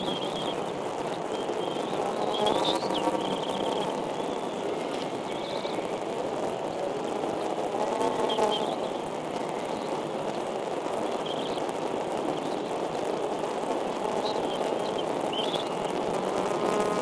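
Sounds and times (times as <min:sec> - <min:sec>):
faint high bird chirps: 0:00.0 - 0:00.6
rushing outdoor background noise: 0:00.0 - 0:17.0.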